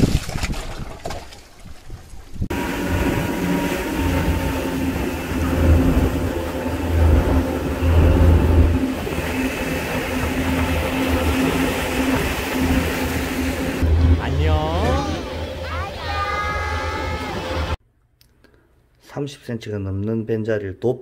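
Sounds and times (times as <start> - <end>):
boat engine rumbling: 2.3 - 17.8
wind rushing: 2.3 - 17.8
water rushing: 2.5 - 17.8.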